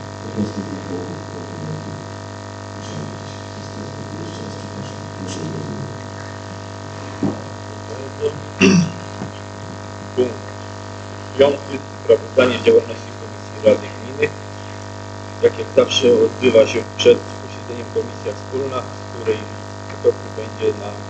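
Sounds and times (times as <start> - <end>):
steady electrical hum: 0.0 - 21.0
faint distant speech: 0.2 - 2.0, 2.8 - 6.6.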